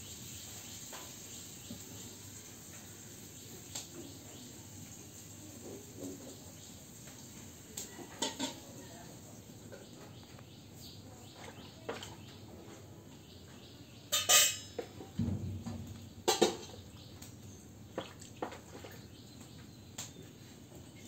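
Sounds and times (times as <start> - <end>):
faint outdoor background: 0.0 - 21.0
low thud: 15.2 - 17.2.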